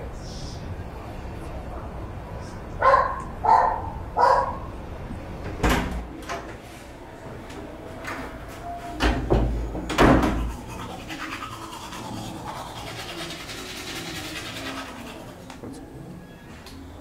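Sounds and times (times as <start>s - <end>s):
toothbrush scrubbing teeth: 10.3s - 15.8s.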